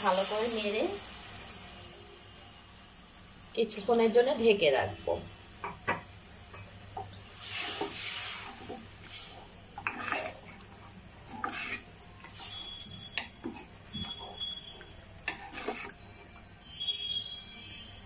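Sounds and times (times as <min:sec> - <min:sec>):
spoon stirring in water: 0:07.0 - 0:16.6
spoon scraping metal pot: 0:09.8 - 0:16.2.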